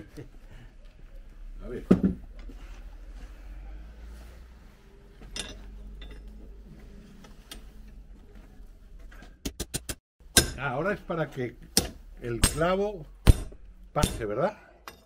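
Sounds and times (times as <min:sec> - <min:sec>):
metal knocks and clinks: 0:05.3 - 0:06.4.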